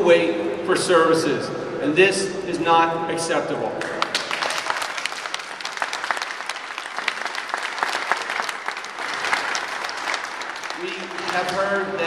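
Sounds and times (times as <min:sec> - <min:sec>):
crowd applauding: 0:03.8 - 0:11.8.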